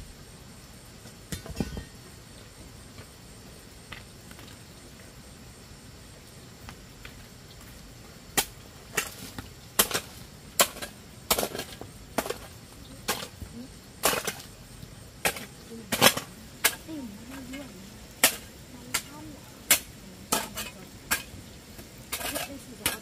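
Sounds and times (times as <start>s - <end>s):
soil scraping: 6.7s - 23.0s
hoe chopping stony earth: 8.3s - 13.4s, 14.0s - 14.5s, 15.2s - 16.9s, 18.2s - 21.4s, 22.1s - 23.0s.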